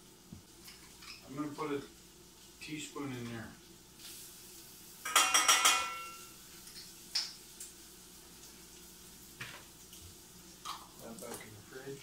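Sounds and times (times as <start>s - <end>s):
spoon tapping metal pot: 5.0s - 6.2s.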